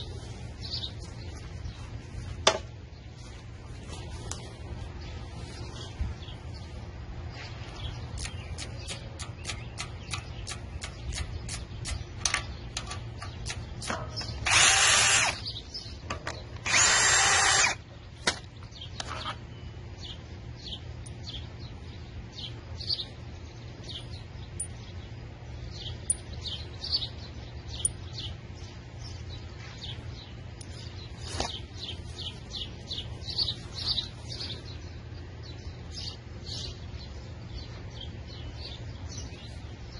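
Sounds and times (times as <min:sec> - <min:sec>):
birds chirping: 0:00.0 - 0:39.9
light regular clicking: 0:08.2 - 0:14.0
cordless drill running: 0:14.4 - 0:15.5, 0:16.6 - 0:17.8.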